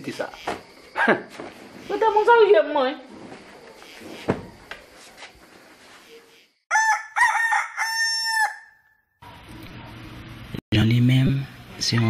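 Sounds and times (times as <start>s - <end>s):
rooster crowing: 6.7s - 9.0s.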